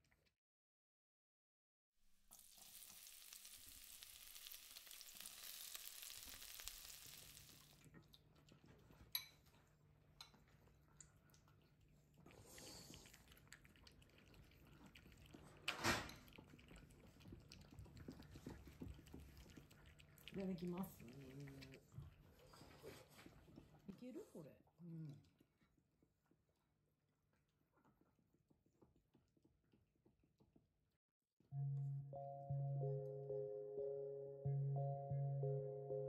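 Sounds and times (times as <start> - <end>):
oil sizzling in a skillet: 2.2 - 7.8.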